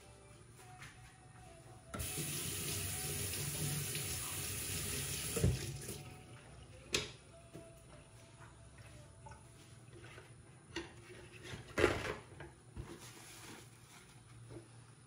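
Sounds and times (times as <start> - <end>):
tap water running: 2.0 - 6.1.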